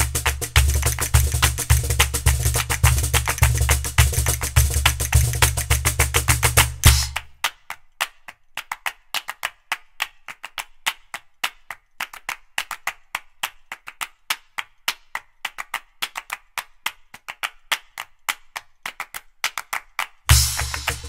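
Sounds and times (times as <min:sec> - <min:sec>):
wood-block clicks: 0:00.0 - 0:07.3
percussion music with clapping: 0:00.0 - 0:21.0.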